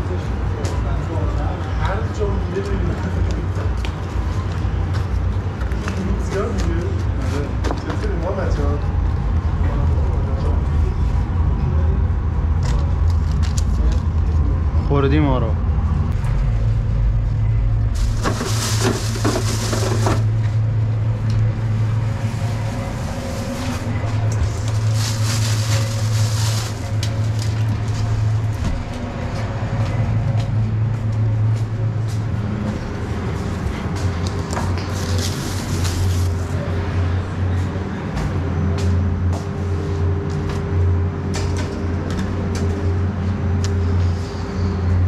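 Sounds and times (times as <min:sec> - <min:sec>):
kitchen machinery humming: 0:17.8 - 0:29.0
plastic bags crinkling: 0:18.0 - 0:20.2, 0:24.5 - 0:27.5.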